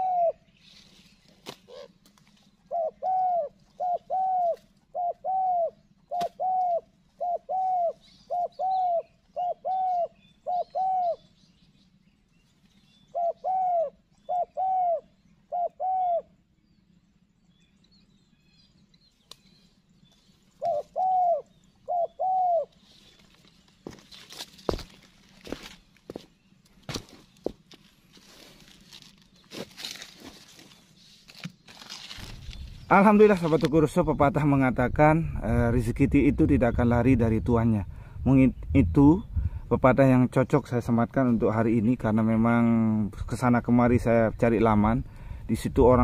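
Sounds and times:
dove cooing: 0:00.0 - 0:00.5, 0:01.6 - 0:02.0, 0:02.6 - 0:11.4, 0:13.0 - 0:16.4, 0:20.5 - 0:23.2.

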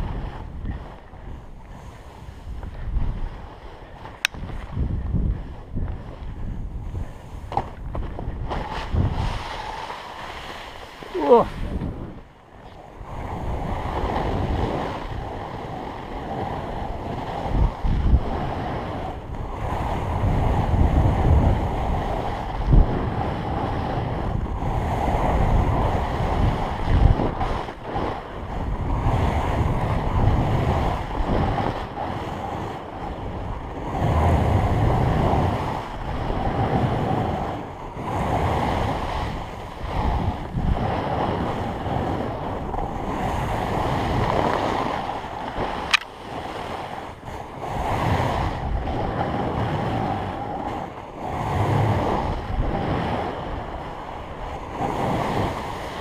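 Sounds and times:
snowboard carving through snow: 0:00.0 - 0:12.2, 0:12.9 - 0:56.0
wind buffeting microphone: 0:00.0 - 0:56.0
sharp tick: 0:04.2 - 0:04.4, 0:45.9 - 0:46.1.

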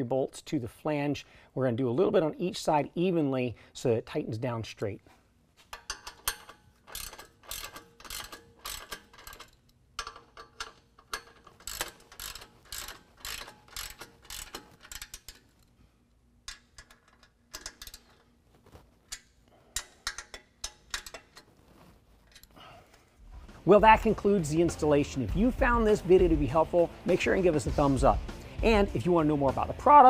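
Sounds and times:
hand ratchet clicking: 0:05.7 - 0:15.8, 0:16.4 - 0:21.5.

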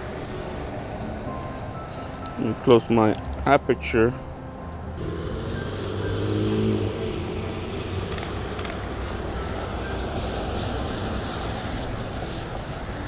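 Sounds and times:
pickup truck engine passing: 0:05.0 - 0:13.0
traffic hiss on wet road: 0:05.0 - 0:13.0.

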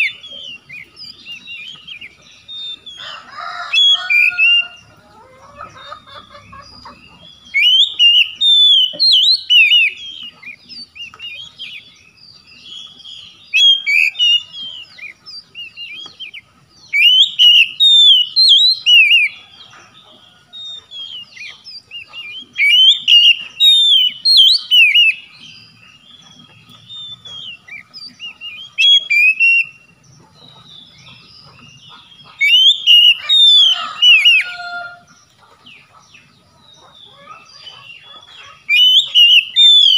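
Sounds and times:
songbird whistling phrases: 0:06.8 - 0:11.9, 0:12.8 - 0:19.4, 0:20.5 - 0:25.3, 0:26.3 - 0:29.9, 0:31.8 - 0:35.0, 0:37.1 - 0:39.9.

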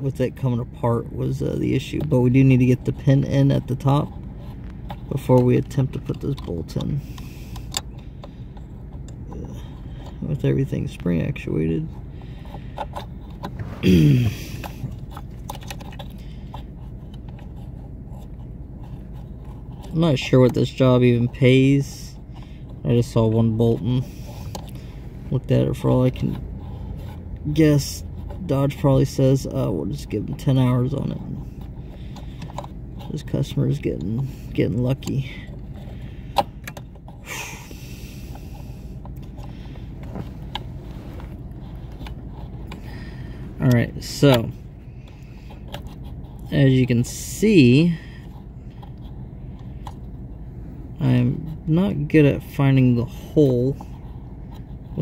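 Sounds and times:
low hum: 0:00.0 - 0:55.0
plastic clicks and scrapes: 0:01.8 - 0:13.7, 0:14.4 - 0:21.4, 0:22.1 - 0:24.9, 0:26.0 - 0:37.3, 0:38.2 - 0:47.2
person grunting: 0:13.7 - 0:14.7.

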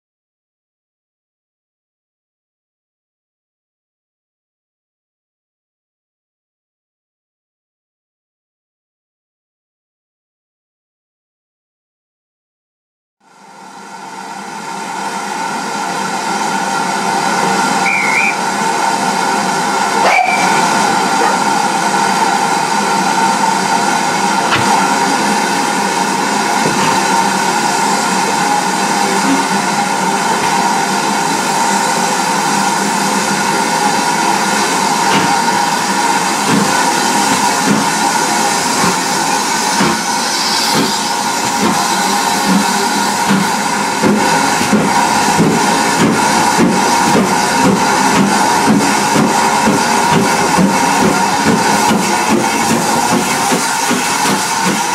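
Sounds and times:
steam hissing from locomotive: 0:14.5 - 0:54.9.

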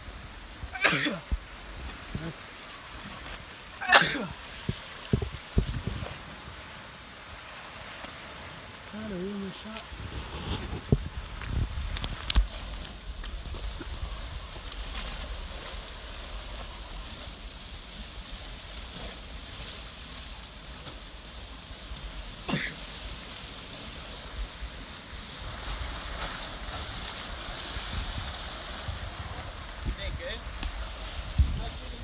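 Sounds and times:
ocean surf against cliff: 0:00.0 - 0:32.0
wind buffeting microphone: 0:04.5 - 0:06.8, 0:09.4 - 0:20.4, 0:23.1 - 0:32.0.

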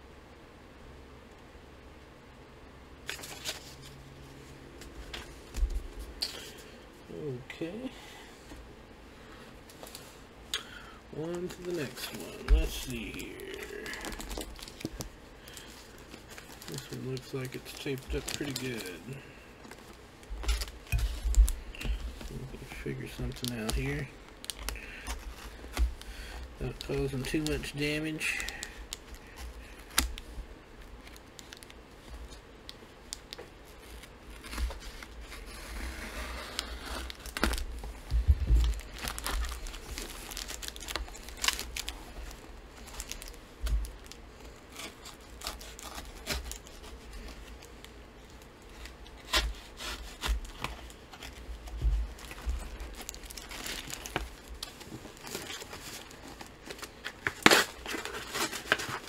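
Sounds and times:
package being handled: 0:03.0 - 0:04.0, 0:11.4 - 0:59.0
knife cutting packing tape: 0:57.2 - 0:59.0
paper and tape tearing: 0:57.2 - 0:59.0.

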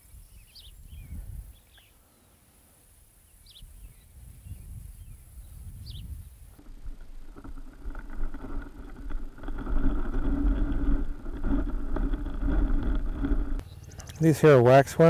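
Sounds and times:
underwater creek rumble: 0:05.6 - 0:15.0
underwater clicks and taps: 0:10.5 - 0:14.2.

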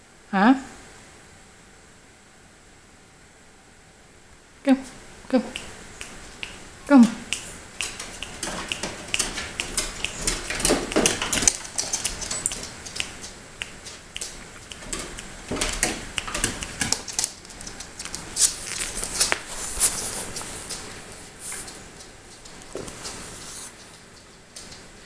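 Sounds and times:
dog claws clicking on stairs: 0:07.3 - 0:25.0.

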